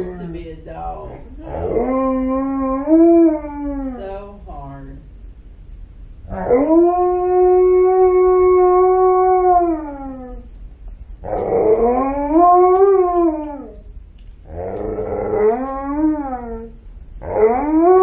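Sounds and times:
dog howling: 1.4s - 4.2s, 6.3s - 10.5s, 11.2s - 13.9s, 14.5s - 18.0s.

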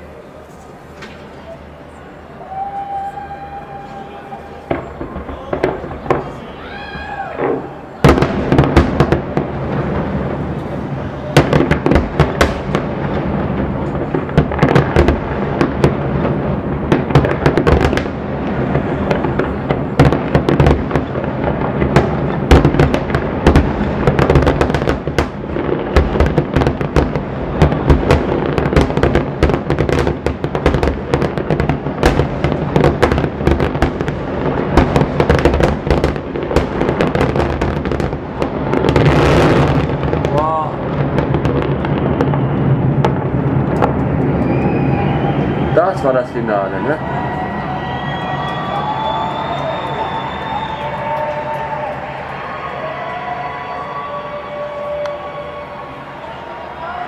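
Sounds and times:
fireworks bursting: 0.0s - 57.0s
loud fireworks booms: 2.5s - 57.0s.

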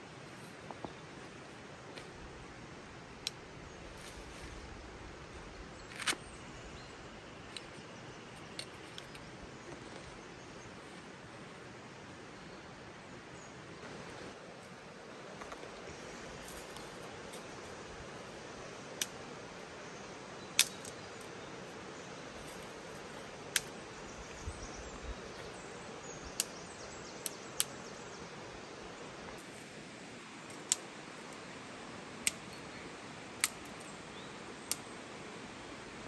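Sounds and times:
outdoor hiss: 0.0s - 36.0s
dry twigs snapping: 20.6s - 21.3s, 23.5s - 23.8s, 33.4s - 33.8s.

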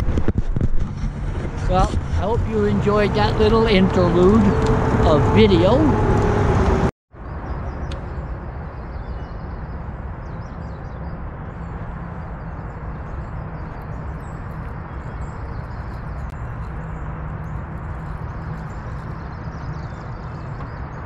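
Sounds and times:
steady low rumble: 0.0s - 6.9s, 11.1s - 21.0s.

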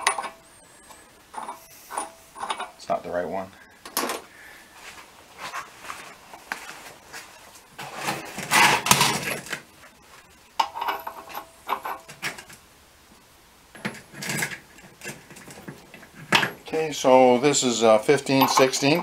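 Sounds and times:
metal tools scraping and rubbing: 0.0s - 2.8s, 10.6s - 12.4s, 18.1s - 19.0s
metal tools clattering: 0.0s - 2.9s, 10.6s - 12.5s, 13.8s - 16.8s, 18.1s - 19.0s.

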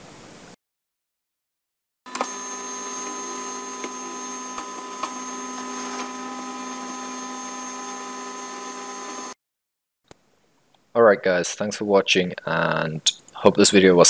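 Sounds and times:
stepper motor whine: 2.1s - 9.4s.

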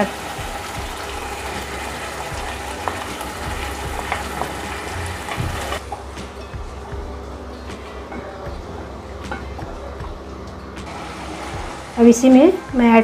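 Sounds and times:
frying sizzle: 0.0s - 7.2s, 10.8s - 13.0s.

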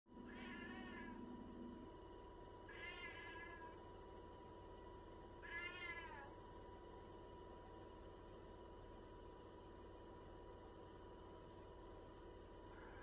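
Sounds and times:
cat meowing: 0.3s - 1.2s, 2.7s - 3.8s, 5.4s - 6.4s.

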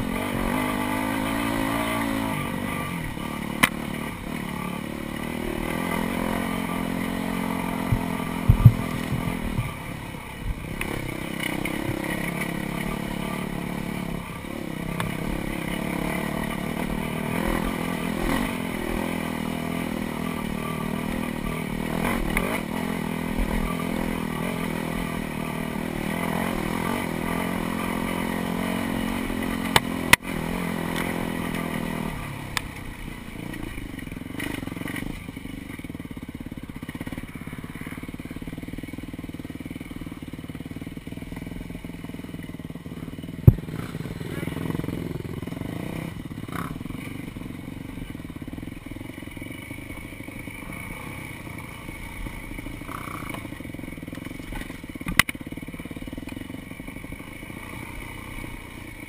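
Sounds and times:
dirt bike engine revving: 0.0s - 59.0s
sharp knocks: 7.9s - 9.7s, 43.4s - 43.9s.

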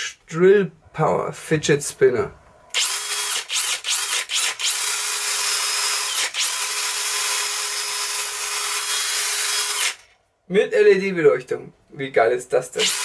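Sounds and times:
cordless drill whining: 2.7s - 10.1s, 12.8s - 13.0s.

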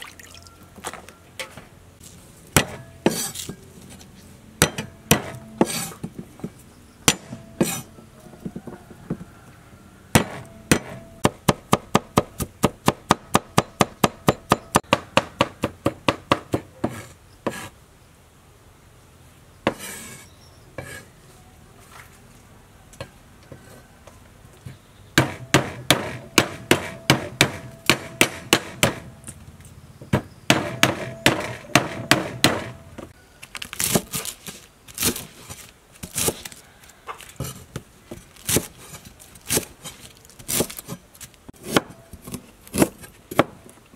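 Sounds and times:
cleaver chopping on wooden board: 4.6s - 6.2s, 7.1s - 7.9s, 10.2s - 17.7s, 25.2s - 29.1s, 30.2s - 32.8s
knife cutting through stalks: 5.2s - 6.0s, 33.6s - 36.6s, 37.2s - 43.1s.

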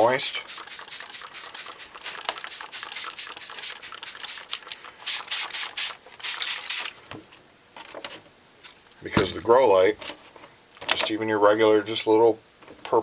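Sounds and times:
spray bottle hissing: 0.0s - 7.0s.

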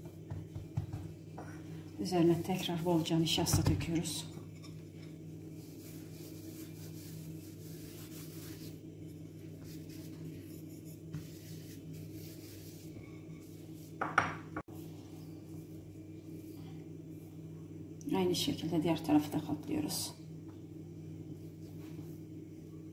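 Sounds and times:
steady low hum: 0.0s - 22.9s
hands rubbing dough: 5.4s - 14.0s.

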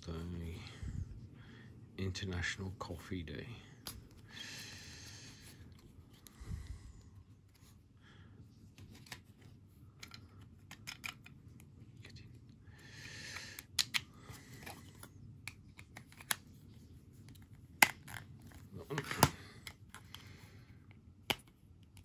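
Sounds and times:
card sliding rustle: 8.6s - 11.1s, 13.9s - 20.4s
plastic card case clicks: 10.0s - 11.3s, 13.6s - 14.1s.

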